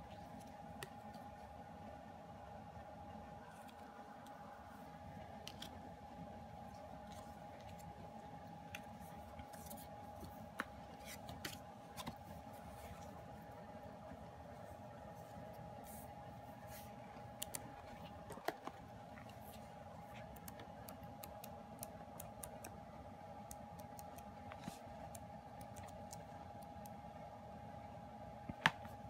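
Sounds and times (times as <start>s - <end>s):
faint steady hum: 0.0s - 29.0s
paper pages turning: 8.7s - 13.1s.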